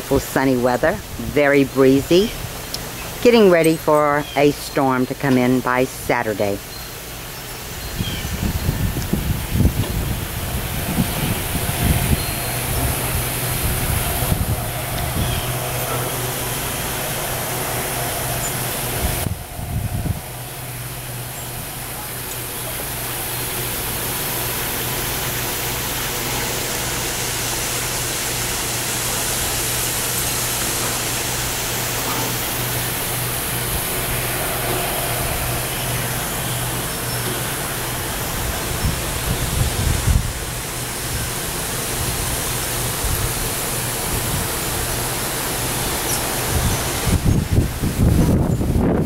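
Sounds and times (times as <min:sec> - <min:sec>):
wind rushing through trees: 0:06.2 - 0:49.0
wind gusts buffeting microphone: 0:07.9 - 0:22.0, 0:32.4 - 0:44.9, 0:46.4 - 0:49.0
low hum: 0:08.4 - 0:24.4, 0:30.0 - 0:44.4.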